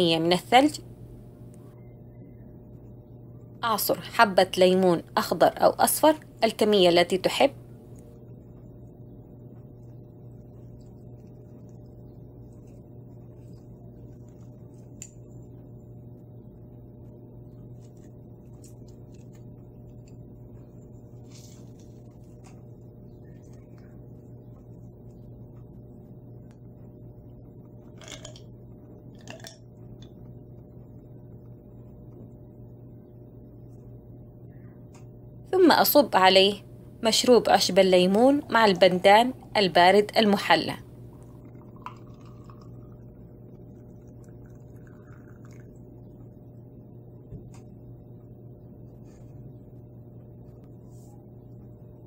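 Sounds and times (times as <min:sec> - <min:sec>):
faint hum: 0:00.0 - 0:52.0
rustling: 0:17.7 - 0:24.8.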